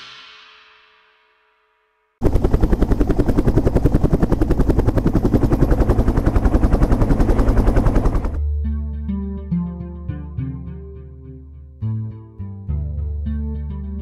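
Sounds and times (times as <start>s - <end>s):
music with bass and guitar: 8.4s - 14.0s.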